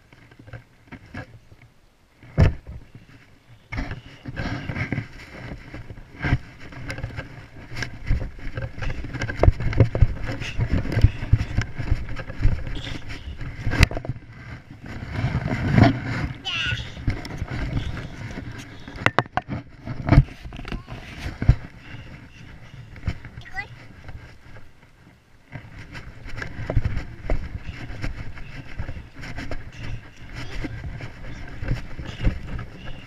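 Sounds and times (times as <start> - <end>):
camera handling rustling and scraping: 2.2 - 33.0.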